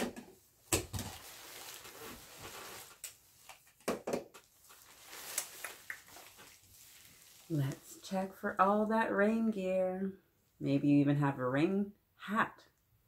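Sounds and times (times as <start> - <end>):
plastic poncho crinkling: 0.6 - 3.8, 4.4 - 8.5.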